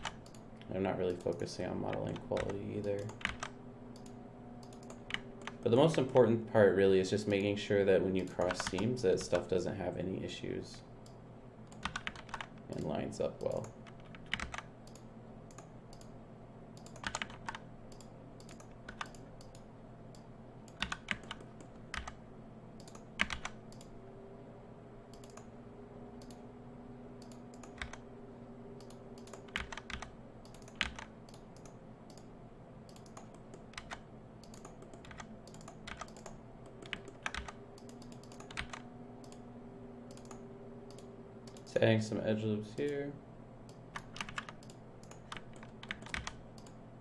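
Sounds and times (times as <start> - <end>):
keyboard and mouse clicking: 0.0 - 6.1, 8.2 - 9.5, 11.0 - 16.1, 16.8 - 22.2, 22.8 - 23.9, 25.1 - 25.5, 26.2 - 26.4, 27.2 - 28.0, 28.8 - 32.3, 32.9 - 39.4, 40.1 - 41.8, 43.7 - 46.8
steady low hum: 0.0 - 47.0.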